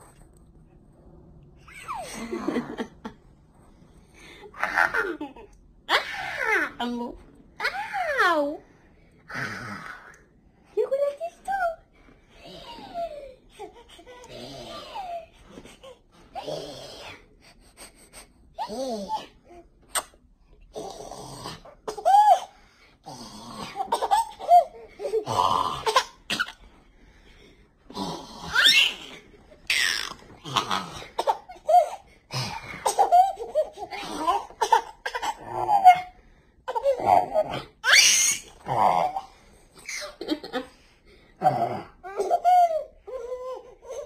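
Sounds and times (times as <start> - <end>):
baby laughing: 32.8 - 36.1
baby squealing: 37.8 - 38.5.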